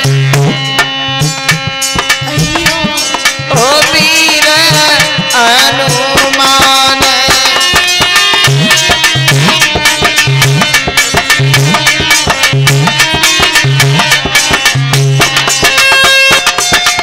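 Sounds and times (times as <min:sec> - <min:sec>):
hand drums: 0:00.0 - 0:17.0
harmonium chords: 0:00.0 - 0:17.0
man singing: 0:02.3 - 0:08.1.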